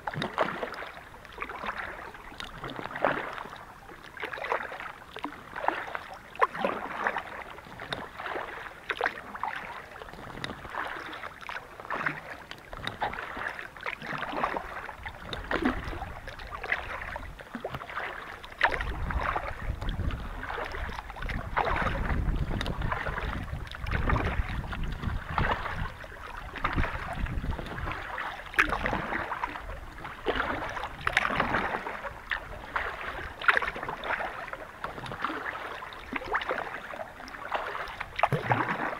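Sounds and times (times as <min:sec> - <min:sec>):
paddle strokes splashing: 0:00.0 - 0:38.9.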